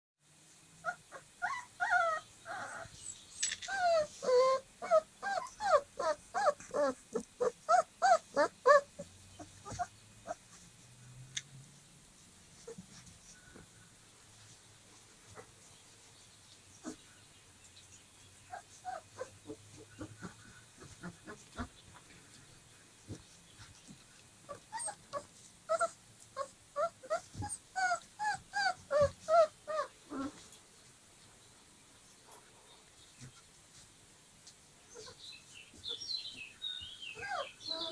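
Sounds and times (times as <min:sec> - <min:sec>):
puppy whining: 0:00.8 - 0:03.1, 0:03.7 - 0:10.5, 0:16.8 - 0:17.0, 0:18.5 - 0:21.7, 0:24.5 - 0:30.5, 0:35.0 - 0:35.2, 0:37.1 - 0:37.9.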